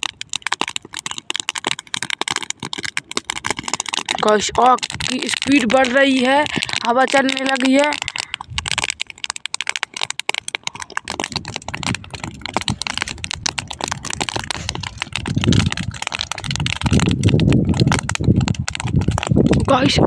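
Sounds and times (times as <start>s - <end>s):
stubble fire crackling: 0.0s - 20.0s
wind rumbling on microphone: 1.6s - 20.0s.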